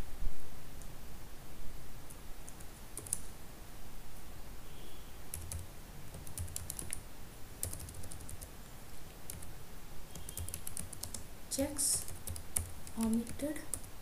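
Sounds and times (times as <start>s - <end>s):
keyboard keystrokes: 2.5s - 3.2s, 5.3s - 7.0s, 7.6s - 8.5s, 9.2s - 9.5s, 10.1s - 11.2s, 11.8s - 13.9s.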